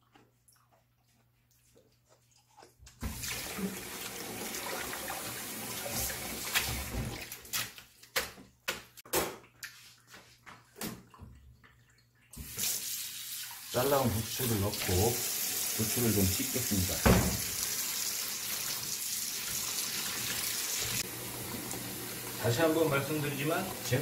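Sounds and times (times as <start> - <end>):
tap water running into basin: 3.0 - 7.5, 10.8 - 24.0
bowl knocking in sink: 17.0 - 17.5.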